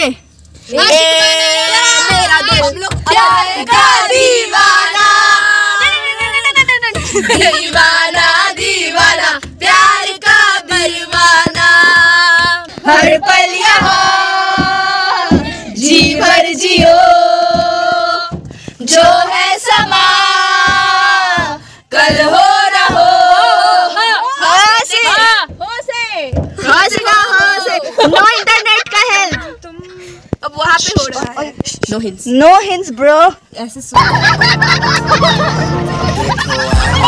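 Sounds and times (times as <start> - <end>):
group singing loudly: 0.8 - 6.2, 7.2 - 25.3, 26.6 - 27.9.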